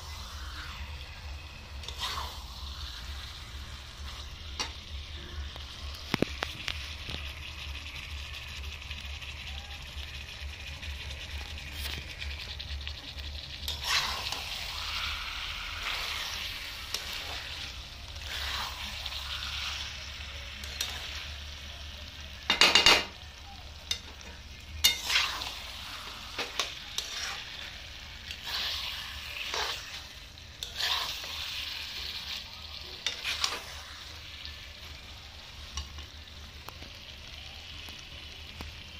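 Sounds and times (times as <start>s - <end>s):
curry sizzling in a pot: 0.0s - 38.9s
steel spatula scraping a pot: 1.8s - 3.2s, 13.6s - 14.7s, 15.7s - 19.2s, 24.8s - 32.4s, 33.0s - 33.9s.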